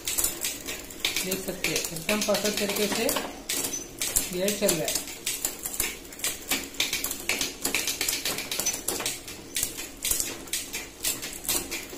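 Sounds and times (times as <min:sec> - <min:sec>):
bicycle chain running: 0:00.0 - 0:11.9.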